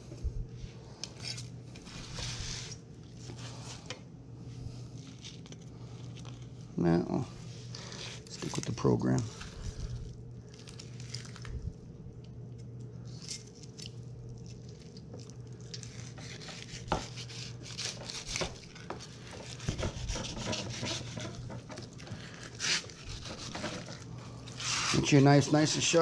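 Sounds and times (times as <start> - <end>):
steady low hum: 0.0 - 26.0
knife slicing and scraping fish skin: 15.6 - 25.0.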